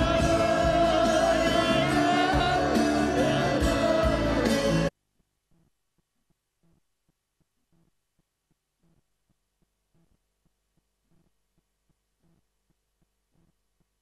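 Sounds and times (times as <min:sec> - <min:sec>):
soft pulses: 0:05.5 - 0:14.0.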